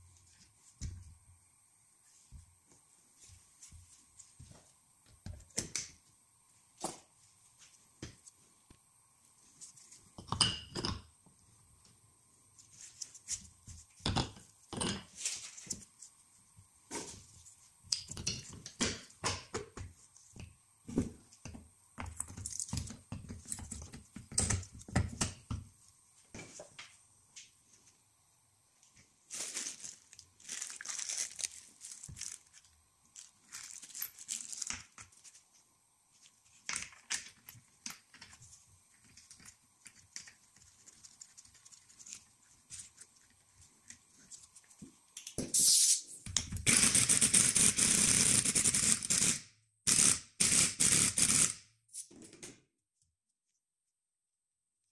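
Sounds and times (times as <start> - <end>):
plastic bag rustling: 29.2 - 35.4.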